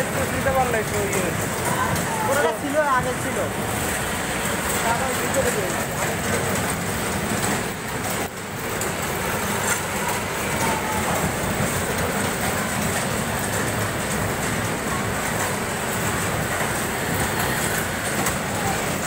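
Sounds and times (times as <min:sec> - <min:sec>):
bumper cars rattling rumble: 0:00.0 - 0:19.0.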